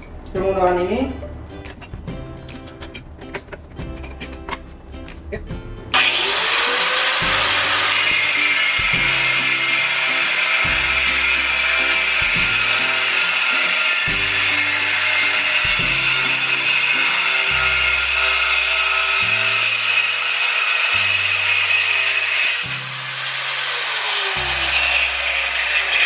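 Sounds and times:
angle grinder cutting tile: 5.9 - 26.0.

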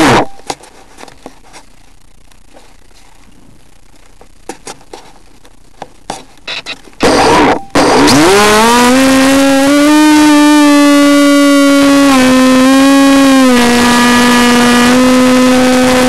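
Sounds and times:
faint hiss: 0.6 - 7.0
electric motor bursts: 7.0 - 16.0.

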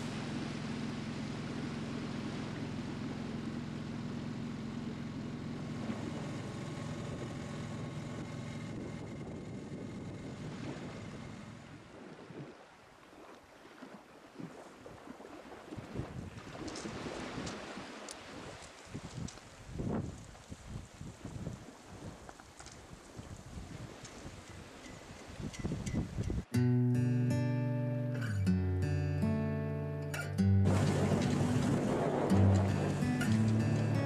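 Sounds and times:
boat motor humming: 0.0 - 13.3, 27.7 - 34.0
water: 0.0 - 26.5, 30.1 - 34.0
wind noise on microphone: 8.1 - 12.6, 15.7 - 26.6, 30.7 - 34.0.

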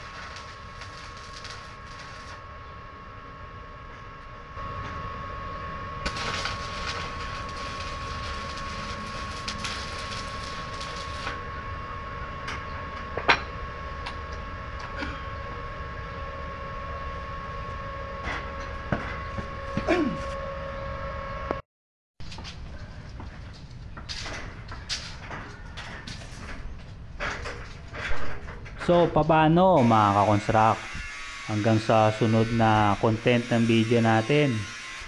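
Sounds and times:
welding arc crackling: 0.0 - 2.6, 3.6 - 15.1
machine hum: 0.0 - 21.6.

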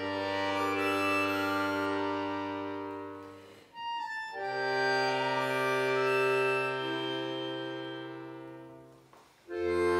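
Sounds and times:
accordion chords: 0.0 - 9.9.

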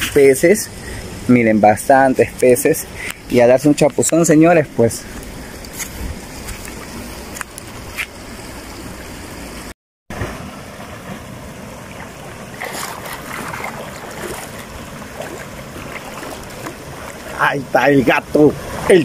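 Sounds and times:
rushing water: 0.0 - 19.0
water splashing from swimming: 10.1 - 19.0.

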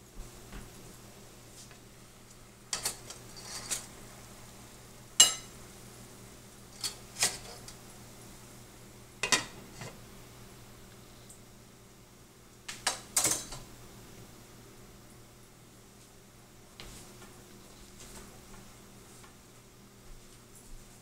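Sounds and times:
metal pot and lid clinking: 5.2 - 5.5, 9.2 - 9.9.

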